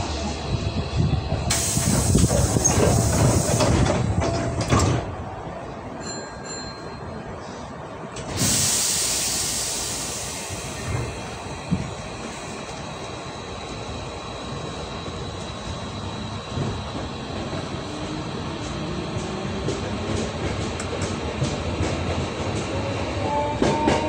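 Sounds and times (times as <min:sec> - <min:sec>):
loud hiss: 0:01.5 - 0:03.8, 0:08.3 - 0:18.3
electric train running: 0:08.2 - 0:24.0.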